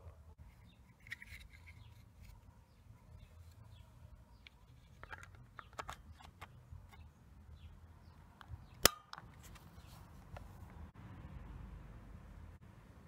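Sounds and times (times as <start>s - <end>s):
plastic battery cover clicks: 8.4s - 9.2s.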